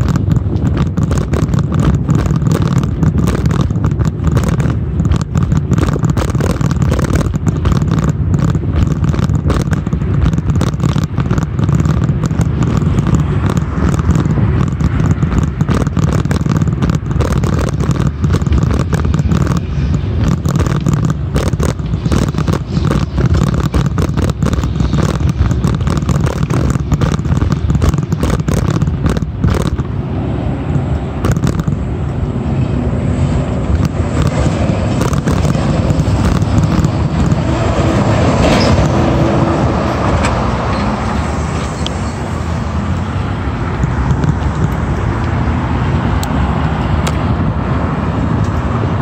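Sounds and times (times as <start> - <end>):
dense rattling clicks: 0.0 - 30.0, 31.2 - 32.2, 33.2 - 40.9
bicycle rumbling on sidewalk: 0.0 - 49.0
road traffic: 0.0 - 49.0.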